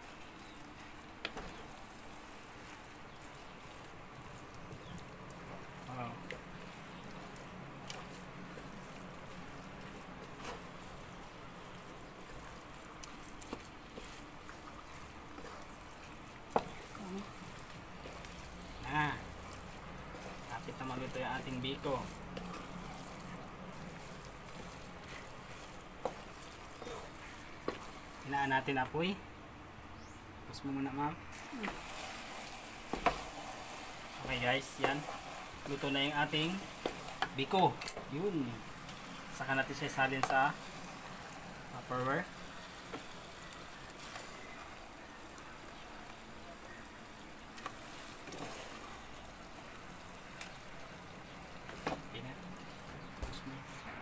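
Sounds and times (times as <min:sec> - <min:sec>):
spatula stirring sticky rice: 0:00.0 - 0:29.2, 0:30.8 - 0:53.8
wooden spatula tapping pot: 0:16.4 - 0:27.9.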